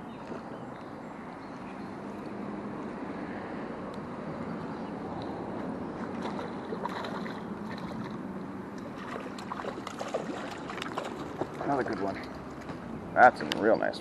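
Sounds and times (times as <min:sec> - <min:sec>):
fish splashing in water: 0:06.0 - 0:12.9.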